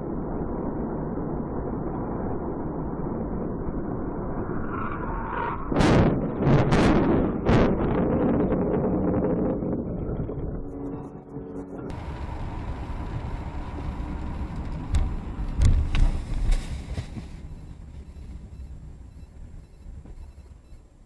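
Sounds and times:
road and engine noise: 9.9 - 21.0.

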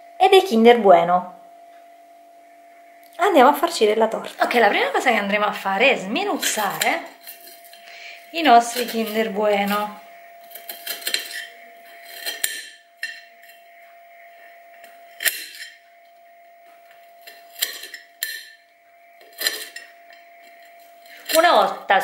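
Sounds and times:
faint steady hum: 0.0 - 22.0
knife clinking on plate: 10.5 - 13.6.

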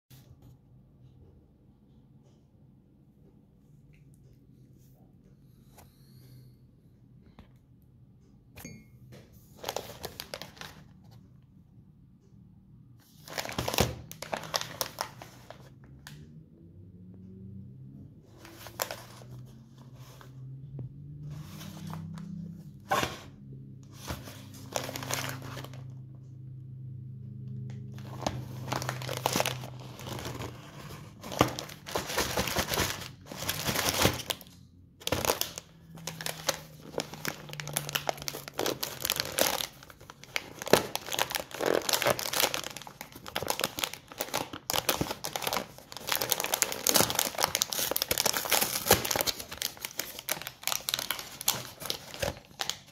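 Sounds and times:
cardboard and plastic crinkling: 9.5 - 11.0, 13.2 - 15.7, 18.4 - 20.3, 21.4 - 26.0, 27.6 - 52.9.

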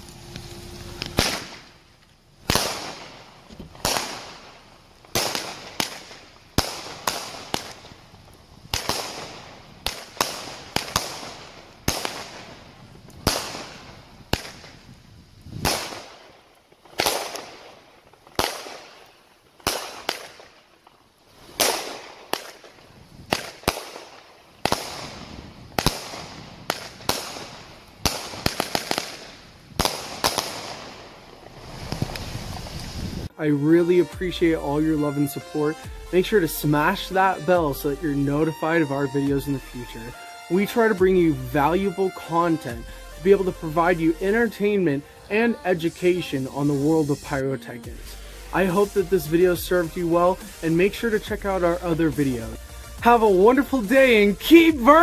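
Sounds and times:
firework bangs: 0.0 - 33.3, 47.9 - 55.0.

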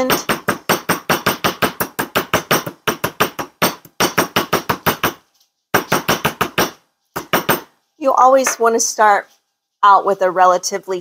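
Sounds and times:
mallet tapping wire on metal: 0.0 - 5.2, 5.8 - 7.7.

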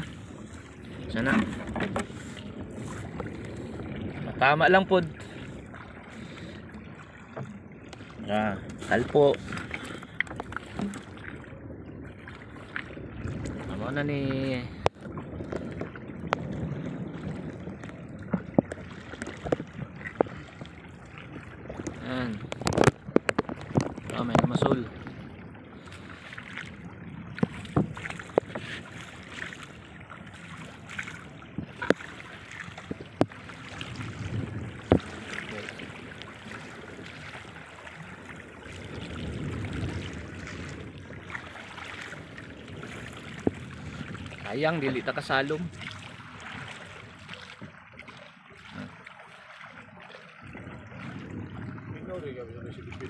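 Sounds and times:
boat knocks and clicks: 0.0 - 3.5, 7.0 - 11.4, 12.2 - 25.2, 25.9 - 37.5, 42.9 - 49.1
water sloshing against boat hull: 0.0 - 53.0.

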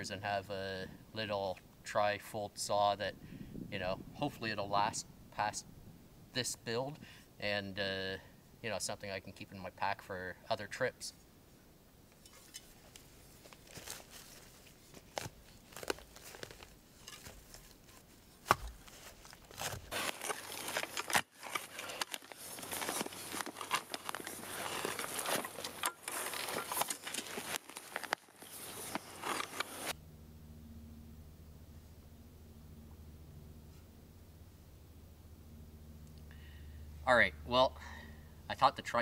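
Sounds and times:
shovel scraping and crunching soil: 12.2 - 30.0.

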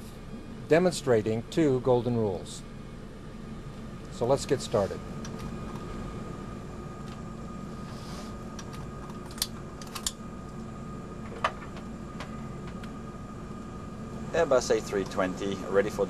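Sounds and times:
fans and air conditioning hum: 0.0 - 16.0.

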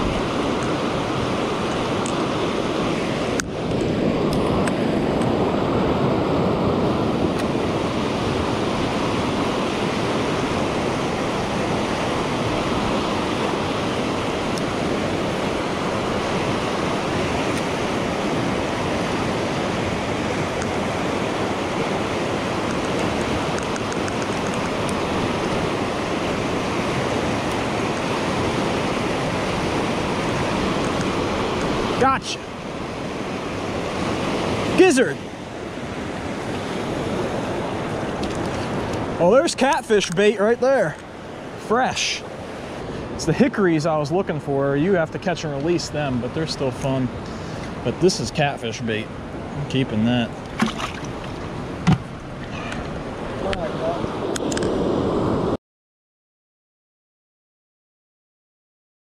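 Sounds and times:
river rapids rushing over rocks: 0.0 - 39.3.

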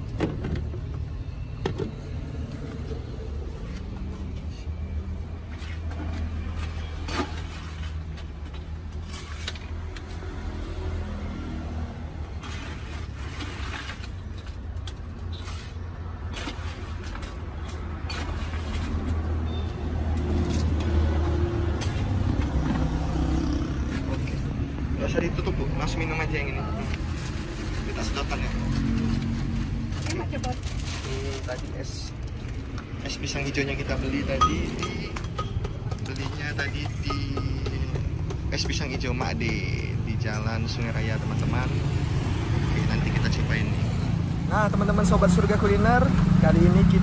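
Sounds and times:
metal ladle against plastic cups: 31.6 - 41.5.

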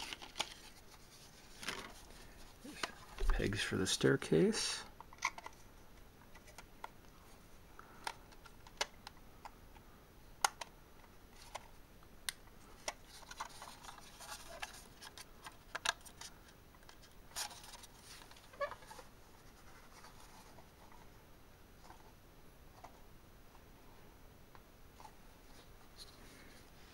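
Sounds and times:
handling rustling: 0.0 - 3.5, 12.7 - 21.2
plastic parts clicking and tapping: 5.0 - 5.6, 8.0 - 9.8, 10.4 - 19.0.

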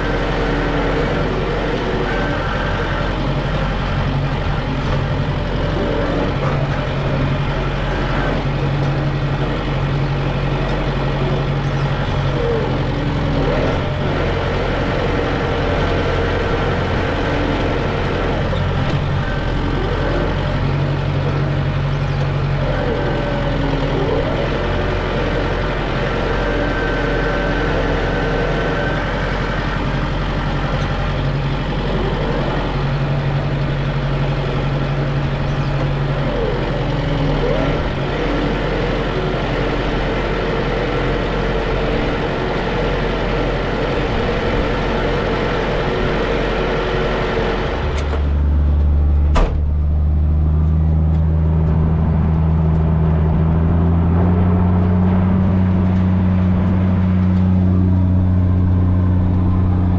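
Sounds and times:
heavy diesel engine running: 0.0 - 59.9.

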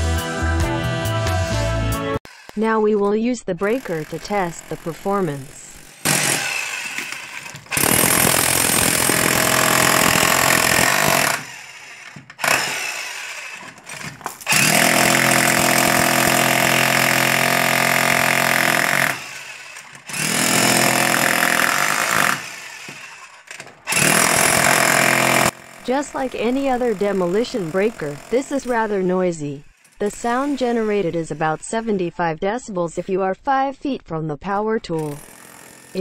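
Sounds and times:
demolition breaker hammering concrete: 5.8 - 28.9.

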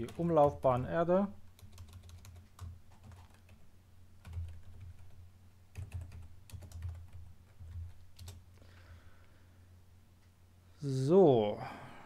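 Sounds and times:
computer keyboard typing: 0.0 - 3.6, 4.2 - 8.4.

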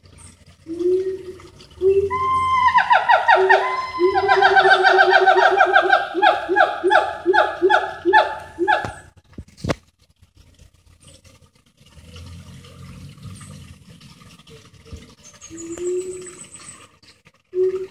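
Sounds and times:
gibbons calling: 0.8 - 9.0.

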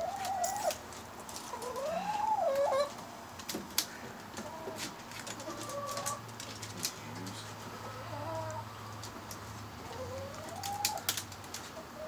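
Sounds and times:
hens calling: 1.5 - 3.0, 4.4 - 8.8, 9.8 - 11.1.

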